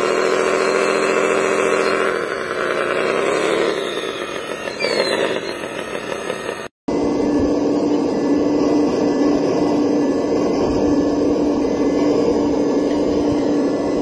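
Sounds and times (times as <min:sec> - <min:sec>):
toy wheel loader motor: 0:00.0 - 0:06.8
toy excavator humming: 0:00.0 - 0:14.0.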